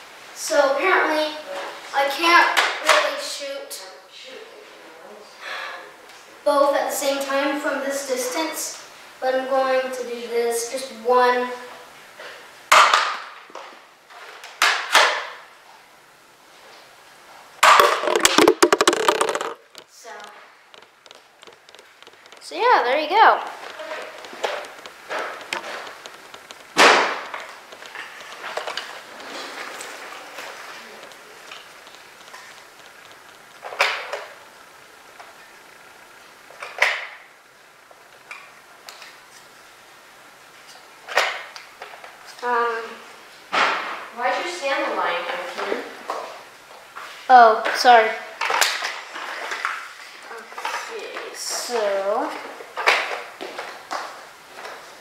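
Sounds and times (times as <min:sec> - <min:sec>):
darts hitting plastic bottles: 0:12.7 - 0:13.3, 0:17.6 - 0:22.4, 0:24.0 - 0:28.8
plastic bottle clattering and crinkling: 0:17.6 - 0:22.5
faint clicks: 0:19.2 - 0:22.5, 0:23.6 - 0:28.9.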